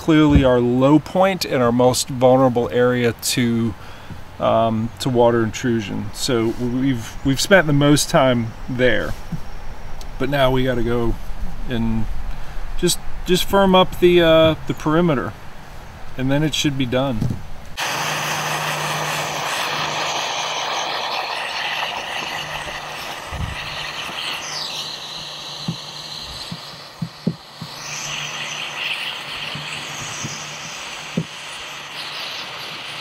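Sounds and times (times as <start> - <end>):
gas torch hissing: 17.8 - 33.0.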